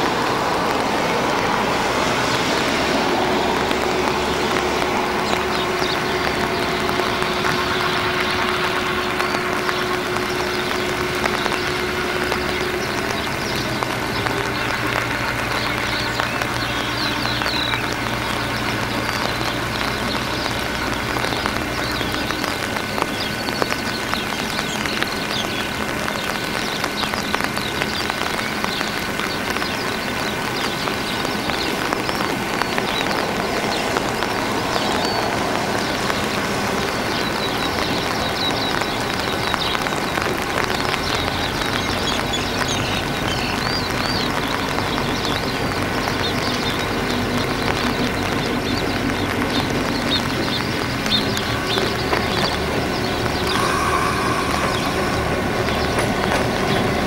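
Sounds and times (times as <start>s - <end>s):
low hum: 0.0s - 41.8s, 48.8s - 57.0s
crackly noise: 0.0s - 57.0s
locomotive engine drone: 0.0s - 57.0s
high chirping: 49.5s - 57.0s.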